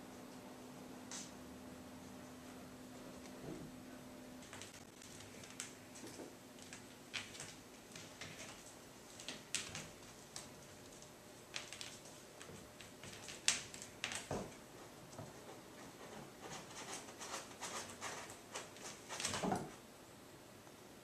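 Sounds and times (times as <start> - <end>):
kittens scrabbling: 4.4 - 19.8.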